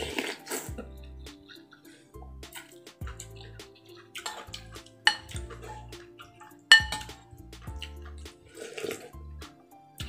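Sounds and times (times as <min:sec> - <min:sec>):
cutlery clinking on ceramic bowl: 0:03.9 - 0:07.2.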